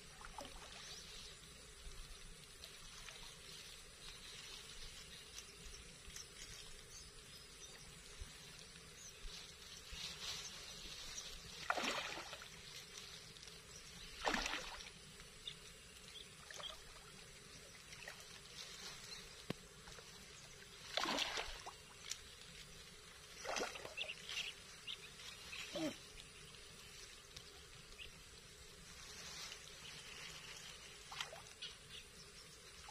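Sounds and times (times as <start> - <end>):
fish splashing at water surface: 11.6 - 12.6, 14.2 - 15.0, 20.9 - 21.9.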